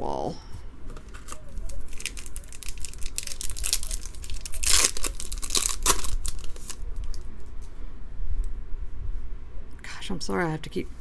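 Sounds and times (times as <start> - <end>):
faint rustles of cards: 0.5 - 7.8
foil wrapper tearing: 1.1 - 7.2.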